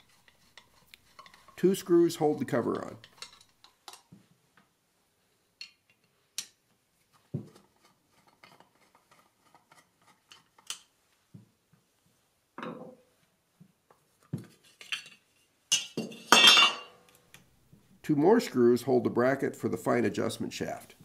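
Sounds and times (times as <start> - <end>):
scrape of handling: 0.0 - 2.3.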